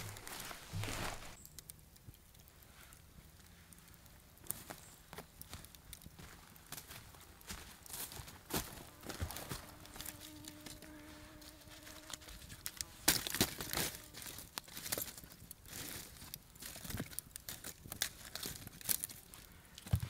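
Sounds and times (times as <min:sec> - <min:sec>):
footsteps on leaf litter: 0:00.0 - 0:01.4, 0:06.2 - 0:19.4
dry wood crackling and snapping: 0:00.0 - 0:20.0.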